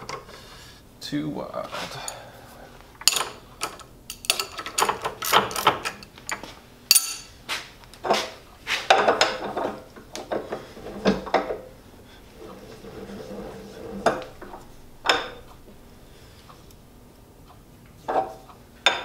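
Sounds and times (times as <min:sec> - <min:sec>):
metal tools clinking and clanking: 0:03.0 - 0:07.3.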